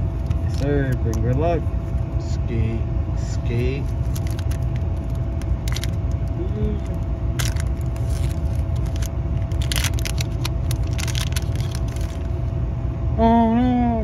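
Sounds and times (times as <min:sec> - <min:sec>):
cards rustling: 0:00.0 - 0:02.0, 0:03.5 - 0:12.4
car rumble: 0:00.0 - 0:14.0
foil wrapper crinkling and tearing: 0:00.1 - 0:01.2, 0:03.6 - 0:12.4.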